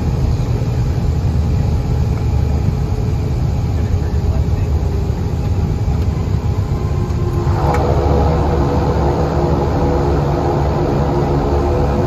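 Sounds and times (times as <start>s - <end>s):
steady whine: 0.0s - 12.0s
turboprop engine drone: 0.0s - 12.0s.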